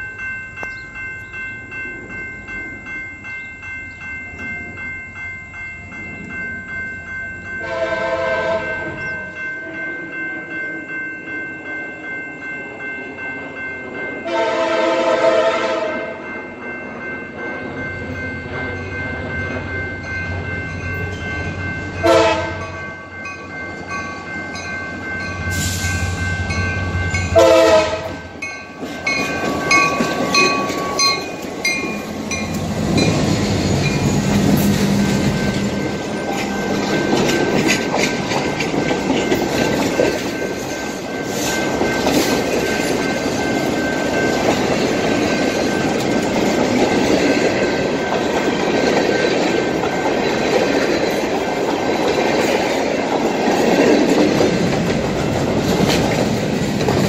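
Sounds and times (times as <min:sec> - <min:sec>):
bell ringing: 0:00.0 - 0:15.0, 0:16.2 - 0:54.6
train horn blasts: 0:07.6 - 0:09.0, 0:14.2 - 0:16.2, 0:22.0 - 0:22.7, 0:27.3 - 0:28.3
diesel locomotive engine passing: 0:14.2 - 0:57.0
train wheels clacking over rail joints: 0:28.8 - 0:57.0.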